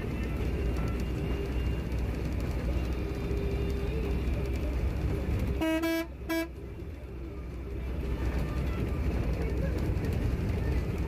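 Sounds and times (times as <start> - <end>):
vehicle engine drone: 0.0 - 11.0
vehicle horn toots: 5.6 - 6.6.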